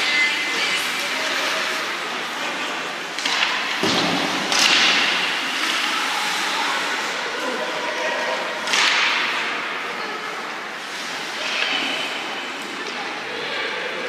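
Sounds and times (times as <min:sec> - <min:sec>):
stick and puck clacks: 0:03.1 - 0:06.0, 0:08.6 - 0:09.8
skates hissing on ice: 0:05.1 - 0:07.6.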